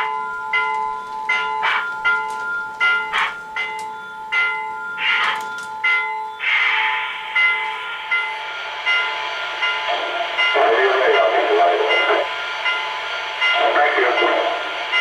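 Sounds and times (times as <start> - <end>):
bell ringing: 0.0 - 15.0.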